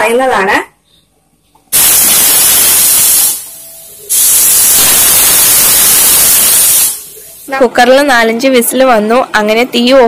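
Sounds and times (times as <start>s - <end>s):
pressure cooker whistling: 1.8s - 7.2s.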